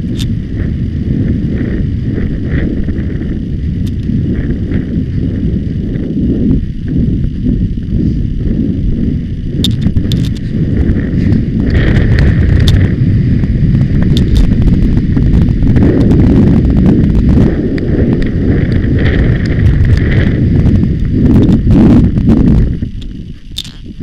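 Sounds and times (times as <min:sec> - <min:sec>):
wind buffeting a microphone: 0:00.0 - 0:24.0
clicks and knocks from riding: 0:09.6 - 0:10.5, 0:14.0 - 0:14.6.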